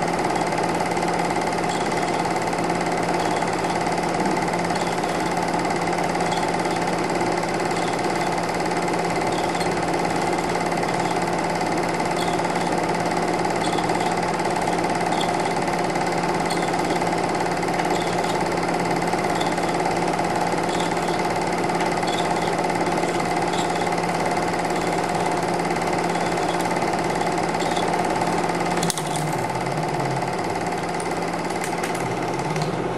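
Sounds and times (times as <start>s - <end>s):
film projector whirring: 0.0s - 32.9s
film transport ticking: 0.0s - 32.9s
projector click: 20.6s - 32.9s.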